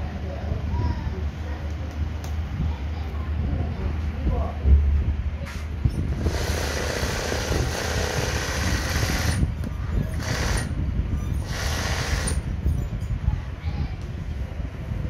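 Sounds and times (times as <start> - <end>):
sewing machine stitching fast: 6.2 - 9.4, 10.2 - 10.7, 11.5 - 12.4.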